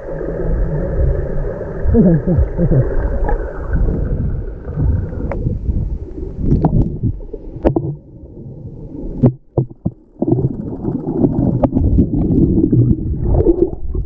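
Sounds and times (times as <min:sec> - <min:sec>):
underwater rumble of churned water: 0:00.0 - 0:14.0
water bubbling: 0:00.0 - 0:14.0
sharp clicks and knocks underwater: 0:06.4 - 0:08.0, 0:09.2 - 0:14.0.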